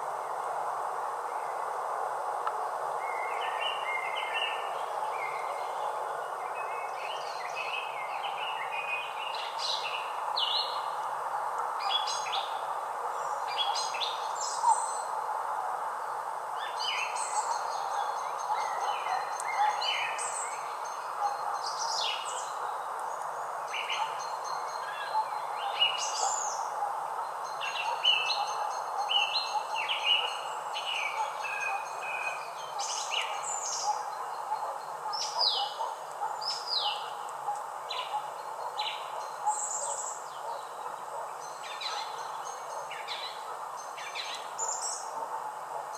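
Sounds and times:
background hiss: 0.0s - 45.9s
songbirds chirping and whistling: 11.8s - 15.1s, 16.6s - 45.9s.

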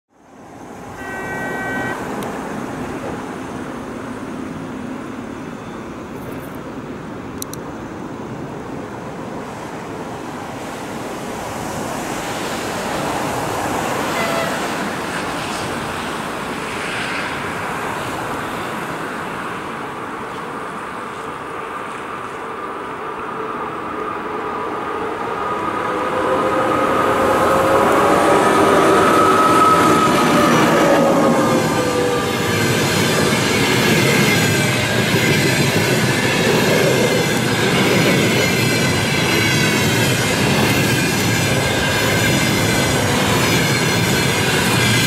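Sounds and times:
brief high tone: 0.9s - 2.0s
train rushing rumble: 8.0s - 45.0s.

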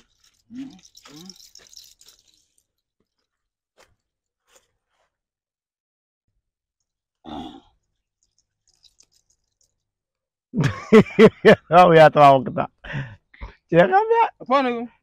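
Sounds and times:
person clearing throat or grunting: 7.2s - 7.7s.

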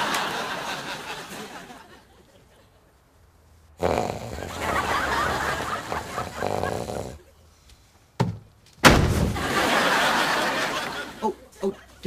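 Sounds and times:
man snoring loudly: 3.8s - 7.2s.

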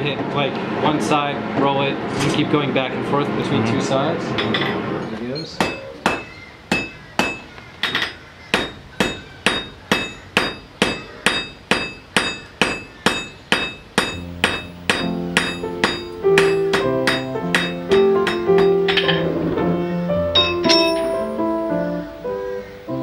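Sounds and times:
hammer striking iron on anvil: 5.6s - 19.2s, 20.3s - 21.1s
keyboard music: 14.2s - 23.0s.

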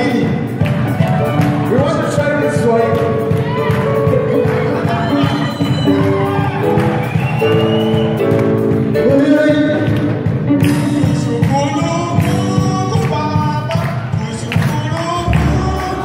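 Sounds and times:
sharp percussion strikes: 0.0s - 16.0s
gospel singers over loudspeakers: 10.5s - 16.0s.

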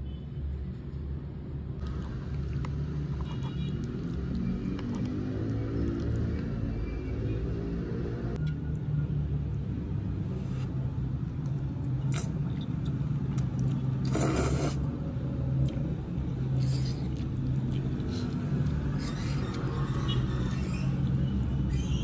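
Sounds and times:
slurping noodles: 14.0s - 14.9s.

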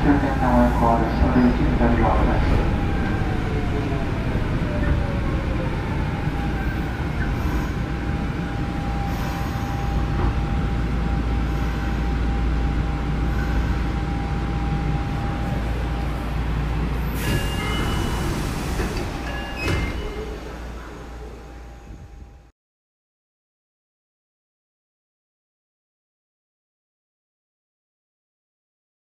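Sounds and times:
train rumble: 0.0s - 22.5s.

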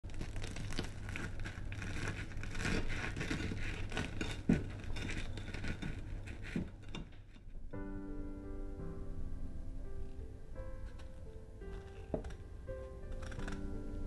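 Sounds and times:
knife and fork crunching tortilla: 0.2s - 7.4s, 13.1s - 13.7s.

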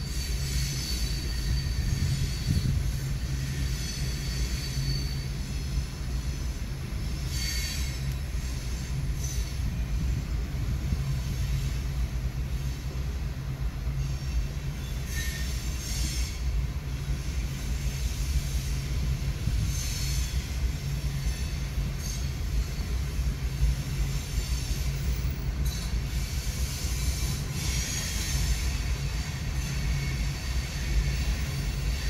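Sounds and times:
high-pitched wheel squeals: 0.0s - 10.2s, 13.9s - 16.6s, 19.6s - 23.2s, 23.8s - 32.0s
train wheels rumbling on rail: 0.0s - 32.0s.

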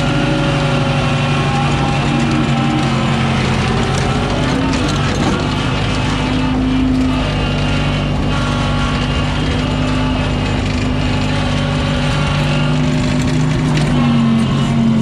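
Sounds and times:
skid steer engine running: 0.0s - 15.0s.

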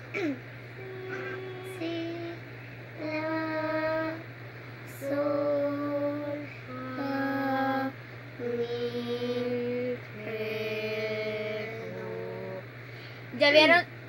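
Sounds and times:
low hum: 0.0s - 13.3s.

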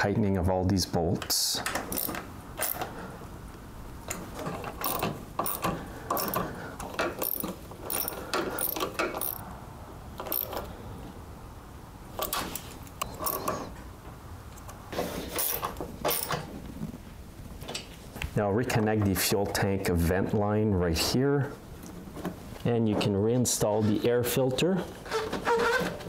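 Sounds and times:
socket ratchet clicking: 1.7s - 2.9s, 4.7s - 9.4s, 10.2s - 10.7s.

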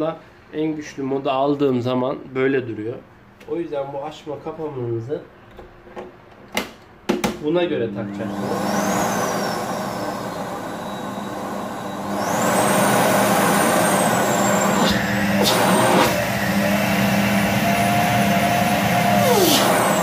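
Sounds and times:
vacuum cleaner motor whining: 7.9s - 20.0s.

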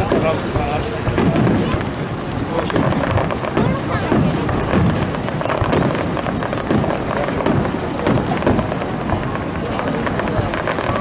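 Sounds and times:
fireworks booming and crackling: 0.0s - 11.0s.

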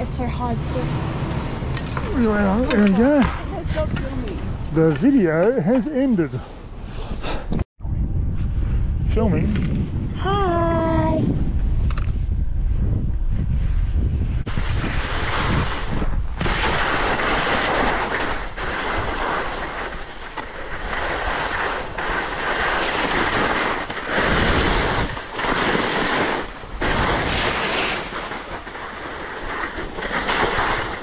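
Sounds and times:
wind on microphone: 0.0s - 4.9s, 6.7s - 31.0s
skis scraping over snow: 1.7s - 4.2s, 14.5s - 31.0s.

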